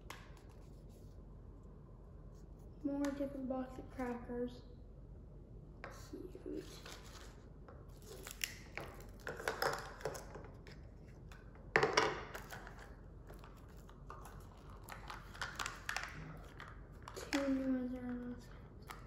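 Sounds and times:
plastic wrapper and foil crinkling: 0:06.5 - 0:11.4, 0:12.3 - 0:19.0.

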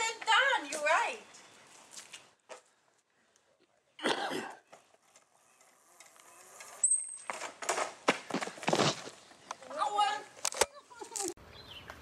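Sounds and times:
scooter squeal: 0:05.2 - 0:07.8.

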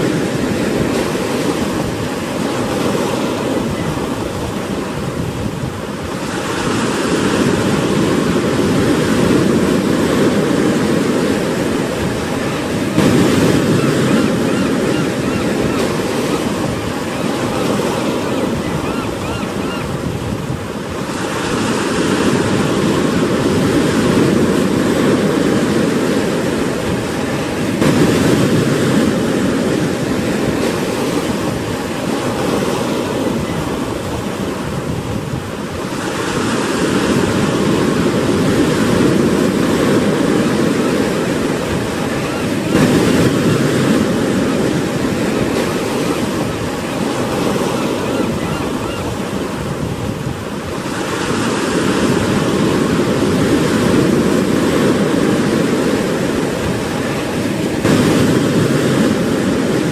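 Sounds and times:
surf breaking against rocks: 0:06.0 - 0:19.6, 0:26.9 - 0:34.6, 0:36.8 - 0:48.9, 0:50.8 - 0:59.9.

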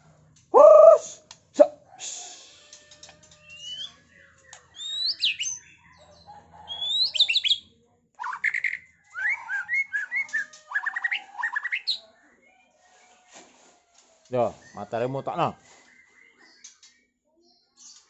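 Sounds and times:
songbird singing whistles and trills: 0:03.4 - 0:05.9, 0:06.6 - 0:12.0.

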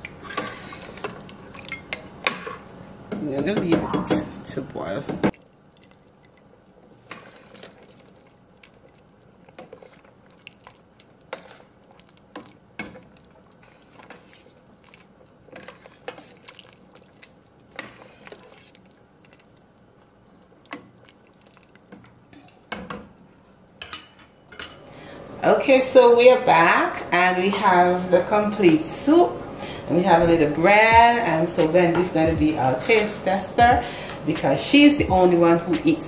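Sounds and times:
metal spoon stirring in pot: 0:00.0 - 0:04.3, 0:05.1 - 0:19.6.

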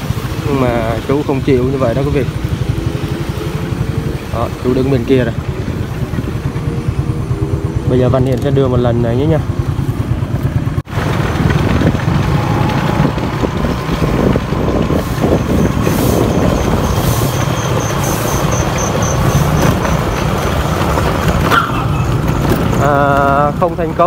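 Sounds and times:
motorbike engine rumble: 0:00.0 - 0:24.0
wind on microphone: 0:10.9 - 0:23.4.

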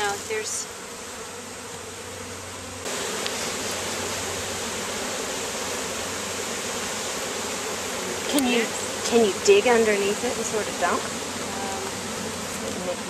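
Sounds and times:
honeybee swarm buzzing: 0:00.0 - 0:13.0.

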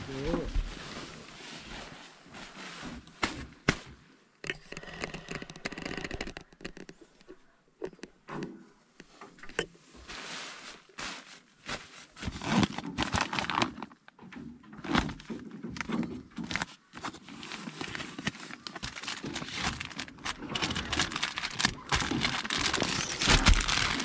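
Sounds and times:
bag shifting on crinkly plastic: 0:00.0 - 0:04.0, 0:09.8 - 0:14.1, 0:14.7 - 0:24.0
hand rummaging among snack wrappers: 0:09.8 - 0:24.0.

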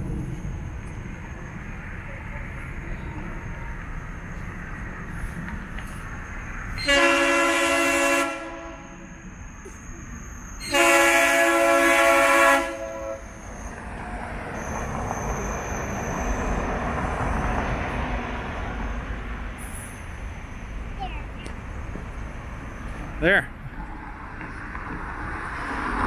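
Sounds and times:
train rumbling past: 0:00.0 - 0:26.0
train horn blasts: 0:06.8 - 0:09.0, 0:10.6 - 0:13.4.

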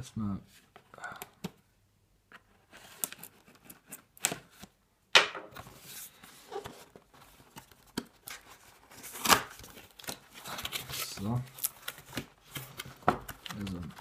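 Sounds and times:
cardboard rustling: 0:05.5 - 0:14.0.

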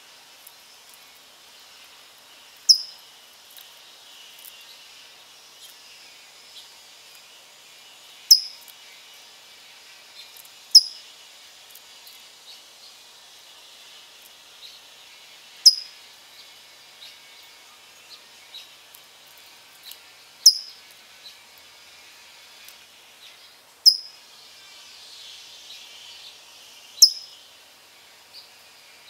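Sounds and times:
faint high hiss: 0:00.0 - 0:29.0
faint bird chirps: 0:02.7 - 0:03.0, 0:08.3 - 0:08.6, 0:10.8 - 0:11.0, 0:15.6 - 0:16.0, 0:20.4 - 0:20.8, 0:23.4 - 0:24.2, 0:27.0 - 0:27.4
songbird chip notes: 0:02.7 - 0:03.0, 0:08.3 - 0:08.7, 0:15.6 - 0:15.9, 0:20.4 - 0:20.8, 0:23.8 - 0:24.2, 0:27.0 - 0:27.4.

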